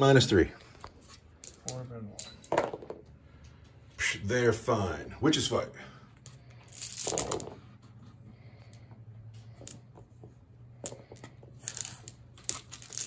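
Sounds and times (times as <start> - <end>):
dice clicking and rattling: 6.4 - 7.6, 10.8 - 13.0.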